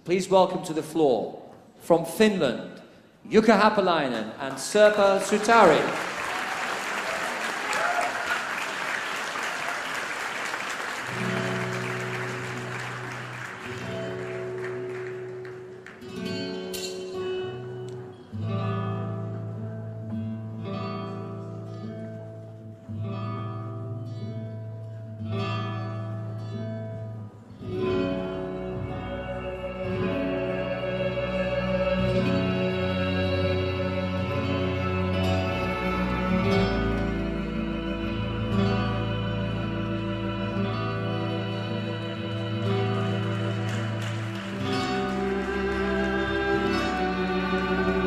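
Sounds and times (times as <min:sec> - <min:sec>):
audience applause: 0:04.8 - 0:16.1, 0:42.2 - 0:48.0.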